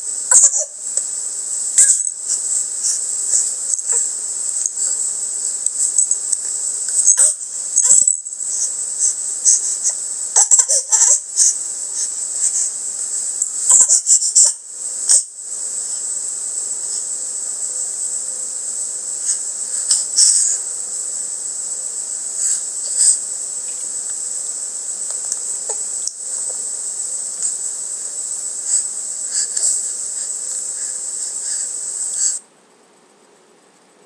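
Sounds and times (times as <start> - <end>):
high-pitched hiss: 0.0 - 34.0
infant breathy bursts: 26.8 - 32.4.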